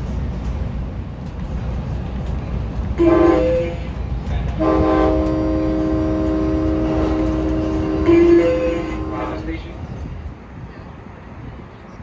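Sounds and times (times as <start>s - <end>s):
train rumble: 0.0s - 12.0s
train horn chord: 3.0s - 3.9s, 4.6s - 9.7s.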